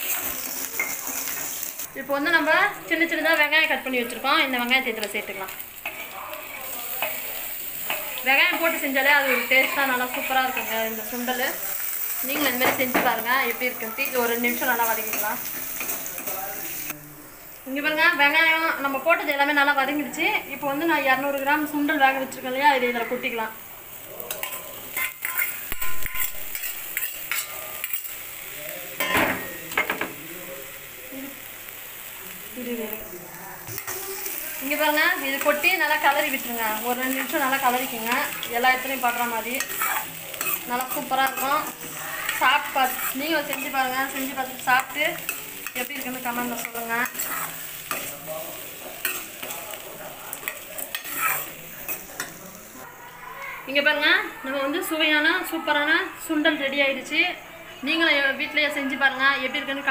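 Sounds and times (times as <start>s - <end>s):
metal spoon scraping a pan: 0.0s - 1.9s, 5.8s - 16.9s, 24.2s - 28.4s, 33.7s - 52.4s
faint sizzle: 0.0s - 59.9s
metal spoon scraping metal pan: 24.3s - 28.2s, 37.1s - 48.1s, 50.4s - 52.3s.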